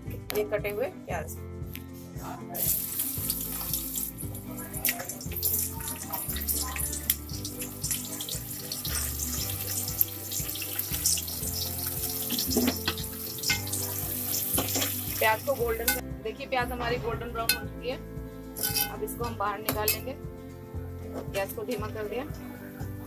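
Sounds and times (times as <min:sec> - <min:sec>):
onion sizzling in hot oil: 0:02.6 - 0:16.0.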